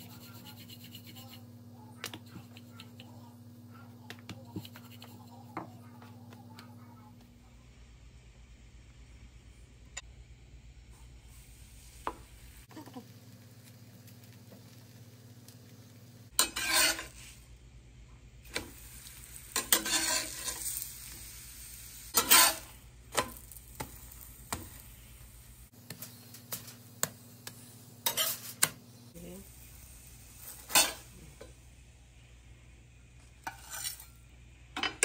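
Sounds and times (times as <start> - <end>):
steel spatula scraping on pan: 0.0 - 1.5, 16.4 - 17.4, 18.5 - 21.0, 22.2 - 23.9, 28.0 - 28.6, 30.4 - 31.1, 33.4 - 34.2
light sizzling: 7.4 - 35.0.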